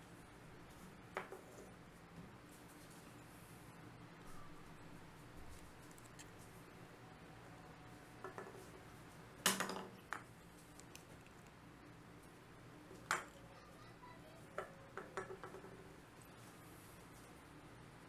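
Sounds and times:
can clattering on wooden table: 9.5s - 10.0s.

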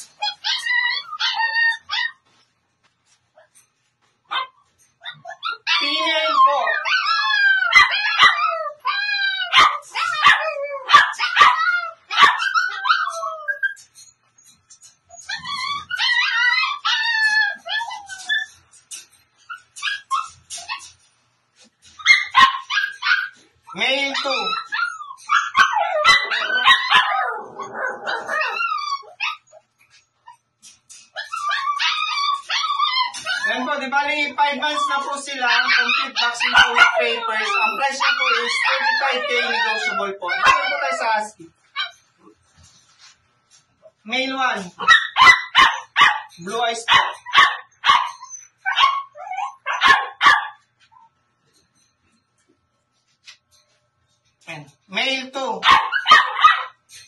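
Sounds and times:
dog yipping: 0.0s - 2.3s, 4.3s - 21.0s, 21.9s - 33.8s, 34.4s - 42.0s, 44.8s - 51.1s, 55.6s - 57.0s
dog howling and whining: 0.2s - 2.3s, 5.1s - 14.0s, 15.1s - 18.6s, 22.0s - 29.6s, 31.2s - 33.8s, 34.4s - 42.0s, 44.8s - 50.3s.

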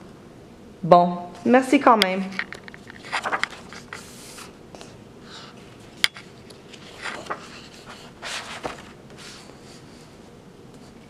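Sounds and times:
book pages turning: 2.5s - 4.6s, 6.2s - 9.5s.

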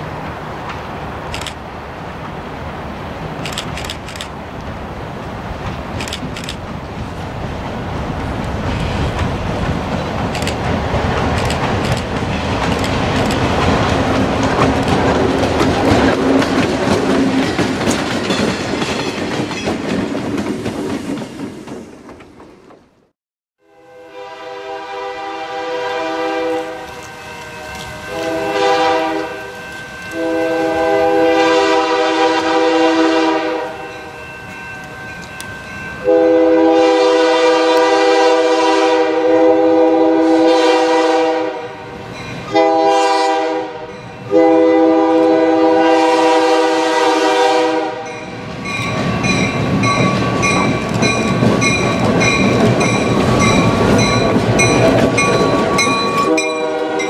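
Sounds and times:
train wheels clicking: 0.2s - 1.6s, 3.4s - 4.7s, 5.5s - 23.0s, 48.4s - 57.0s
train air horn blasts: 23.6s - 33.9s, 36.0s - 48.1s, 55.7s - 57.0s
locomotive engine: 48.8s - 57.0s.

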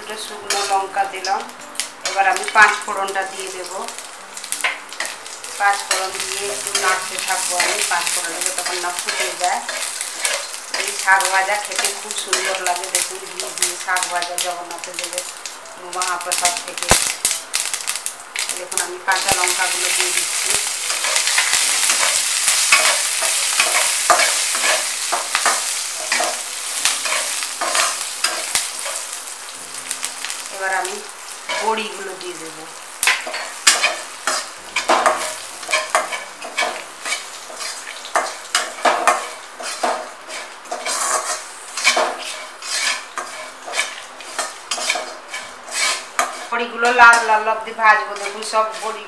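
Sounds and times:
ghee sizzling in a pan: 0.0s - 49.0s
spatula scraping a pan: 5.8s - 11.0s, 19.2s - 29.1s, 33.0s - 47.3s, 47.9s - 49.0s.

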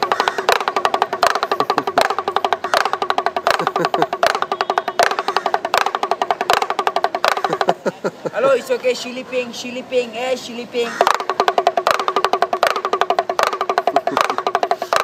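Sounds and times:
pellet drum rattling: 0.0s - 7.9s, 11.0s - 15.0s.

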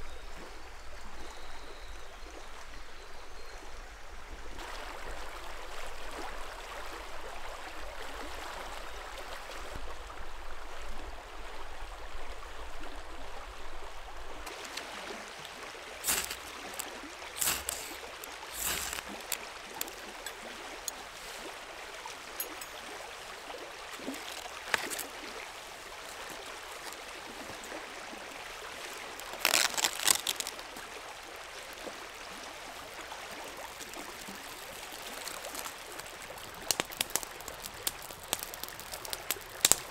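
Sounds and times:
river flowing: 0.0s - 39.9s
ferro rod scraping sparks: 16.0s - 16.8s, 17.4s - 20.4s, 24.2s - 25.0s, 36.7s - 39.9s
knife scraping bark: 16.0s - 16.8s, 17.4s - 20.0s.

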